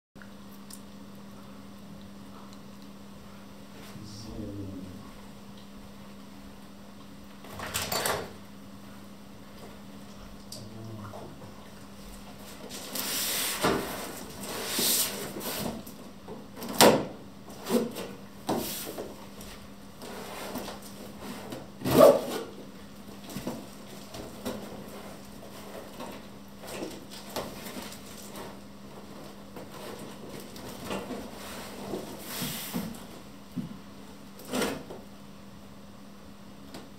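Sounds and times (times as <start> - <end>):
steady low hum: 0.2 - 7.6, 8.3 - 21.8.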